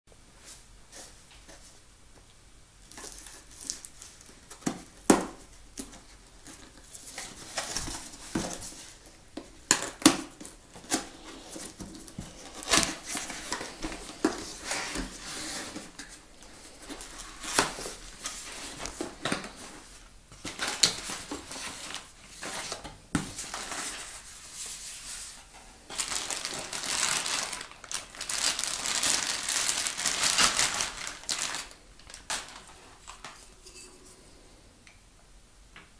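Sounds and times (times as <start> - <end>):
plastic bag crinkling: 25.9 - 33.5.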